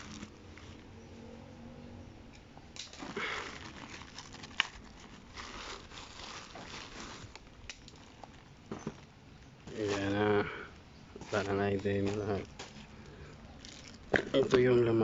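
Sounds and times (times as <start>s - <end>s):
plastic mailer bag crinkling: 0.0s - 0.8s, 2.9s - 9.1s, 11.2s - 14.9s.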